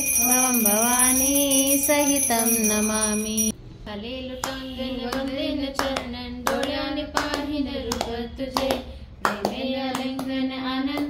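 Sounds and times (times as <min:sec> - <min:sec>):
rhythmic handclapping: 0:04.4 - 0:11.0.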